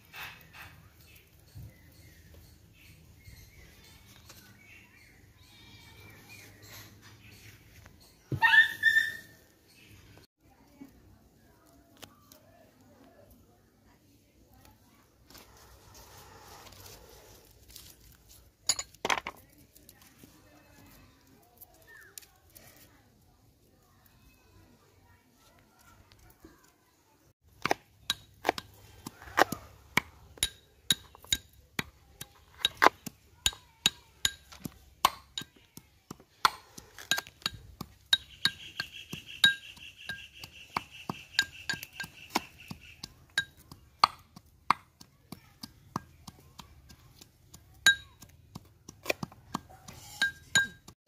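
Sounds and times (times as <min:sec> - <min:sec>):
pestle pounding in metal cup: 0:27.6 - 0:51.0.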